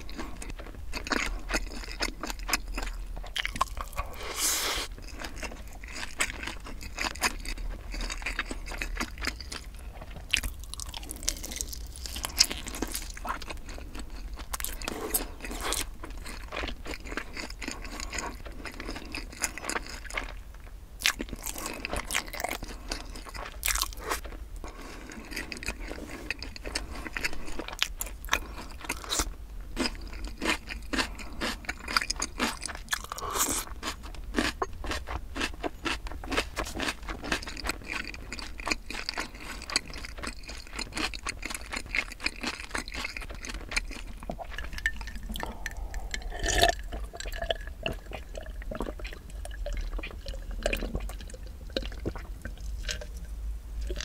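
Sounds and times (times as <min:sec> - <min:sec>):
crunchy chewing: 0:00.0 - 0:54.0
wet mouth clicks: 0:44.3 - 0:49.0.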